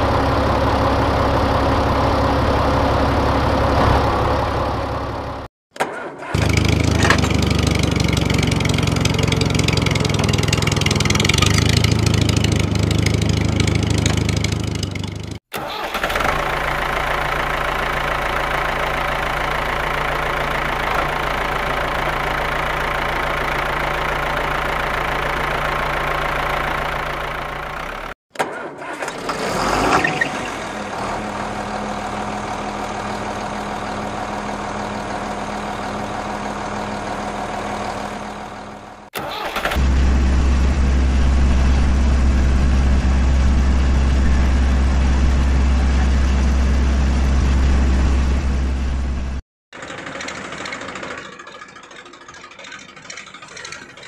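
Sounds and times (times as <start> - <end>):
engine running: 0.0 - 5.5, 6.1 - 28.2, 28.8 - 54.0
engine start-up surge: 15.5 - 17.5, 28.4 - 31.0, 39.2 - 45.2, 47.2 - 54.0.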